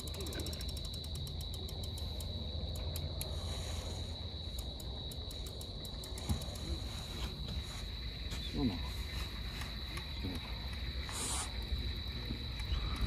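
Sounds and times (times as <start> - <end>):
fishing reel clicking: 0.0 - 3.4, 4.5 - 6.8
cricket trilling: 0.0 - 13.0.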